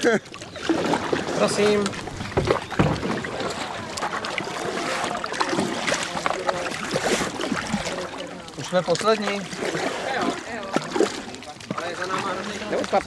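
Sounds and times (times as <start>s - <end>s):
paddles dipping and splashing: 0.0s - 13.0s
water rippling: 0.0s - 13.0s
small knocks and rustles: 1.5s - 3.6s.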